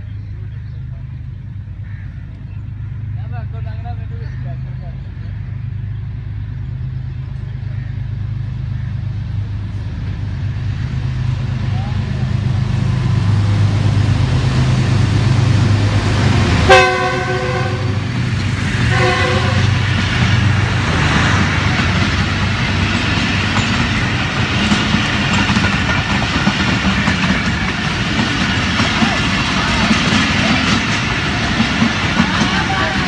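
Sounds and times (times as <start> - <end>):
locomotive engine hum: 0.0 - 33.0
train wheels clattering on rails: 8.4 - 33.0
train horn blasts: 16.1 - 18.1, 18.8 - 19.9.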